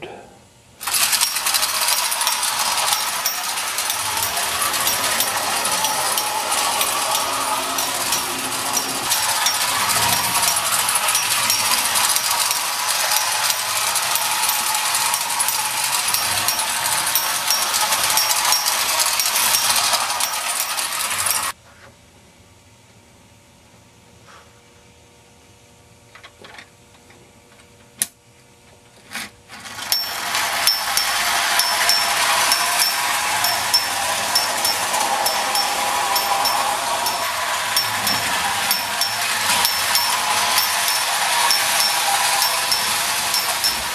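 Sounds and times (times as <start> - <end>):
clockwork toy train whirring: 0.8 - 21.6, 29.5 - 43.9.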